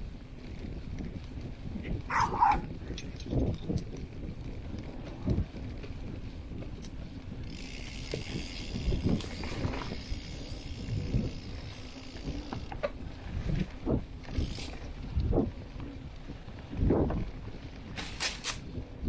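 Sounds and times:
bicycle freewheel ratchet buzzing: 2.7 - 15.3.

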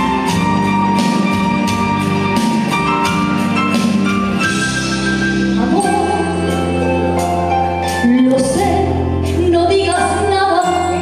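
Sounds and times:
instrumental accompaniment: 0.0 - 11.0
woman singing a ballad: 5.6 - 6.8, 8.0 - 11.0.

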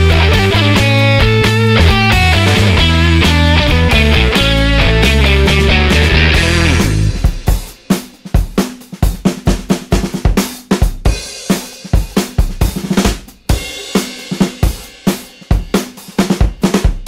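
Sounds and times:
music with drum-kit beat: 0.0 - 17.0.

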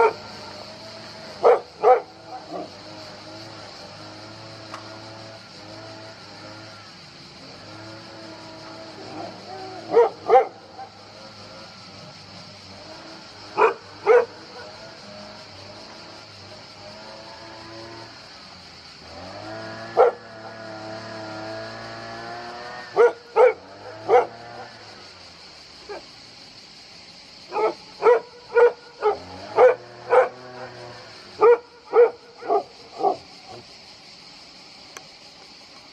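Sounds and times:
steady high hiss: 0.0 - 35.9
dog barking: 1.4 - 2.6, 9.9 - 10.6, 13.6 - 14.7, 23.0 - 24.4, 27.6 - 30.4, 31.4 - 33.2.

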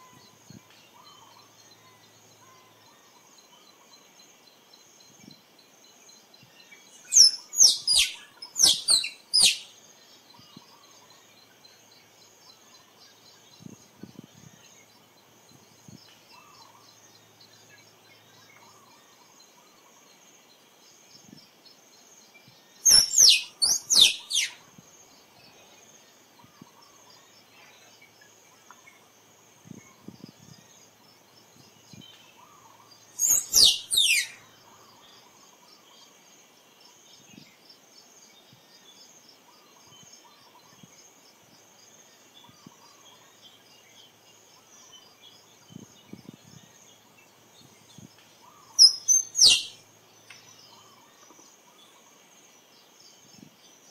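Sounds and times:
faint high insect drone: 0.0 - 53.9
squirrel chirping: 7.0 - 9.7, 22.8 - 24.6, 33.2 - 34.4, 48.6 - 49.8.

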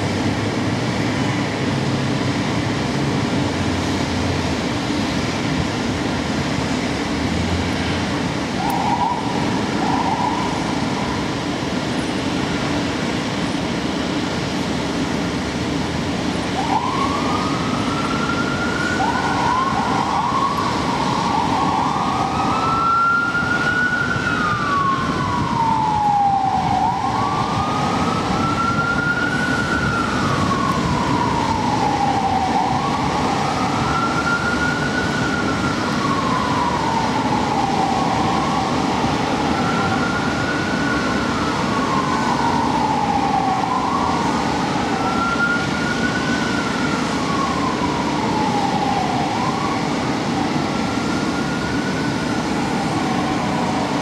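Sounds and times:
fire truck siren: 0.0 - 54.0.

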